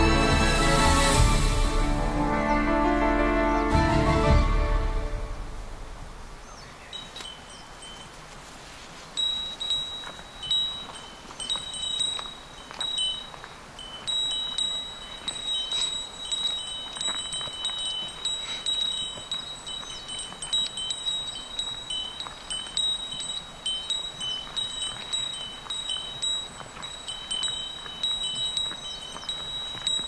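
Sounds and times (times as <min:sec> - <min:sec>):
bell jingling: 0:06.9 - 0:08.4, 0:09.0 - 0:30.0.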